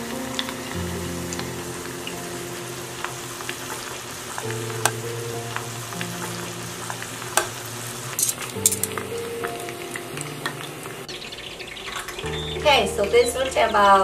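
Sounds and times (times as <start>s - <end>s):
chicken deep-frying in oil: 0.0s - 14.0s
metal tongs clicking: 8.2s - 9.0s.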